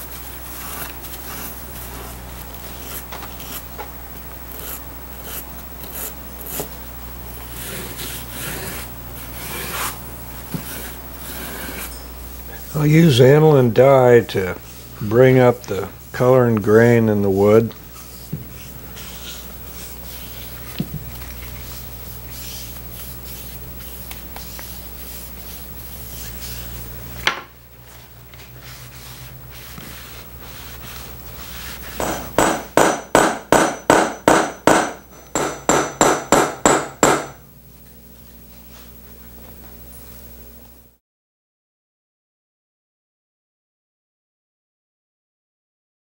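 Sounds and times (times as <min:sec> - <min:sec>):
steady hum: 0:00.0 - 0:41.0
brush and rag rubbing wood: 0:15.2 - 0:27.0, 0:27.8 - 0:32.0.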